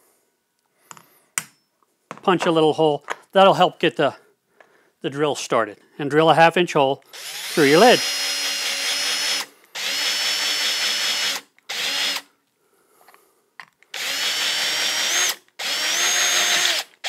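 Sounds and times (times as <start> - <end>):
electric drill boring plastic: 7.1 - 12.3, 13.9 - 17.0.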